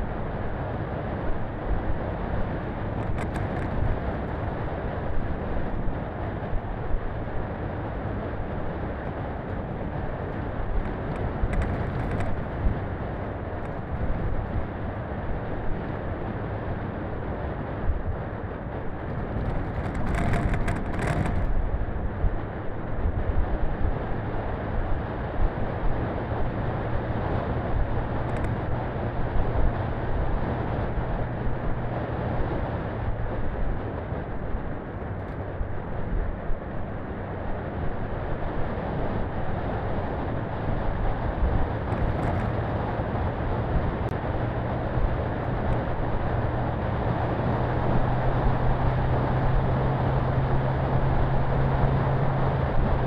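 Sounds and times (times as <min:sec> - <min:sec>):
knocks and rattles over bumps: 0:19.1 - 0:21.6, 0:41.8 - 0:42.6.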